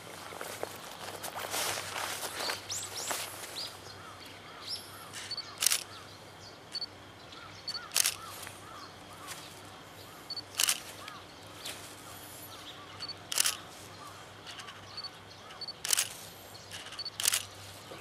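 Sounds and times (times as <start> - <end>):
short bird calls: 2.4 - 6.1, 6.8 - 18.0
sharp clicks: 5.1 - 5.9, 7.7 - 8.3, 10.3 - 11.2, 13.0 - 13.6, 14.4 - 17.6.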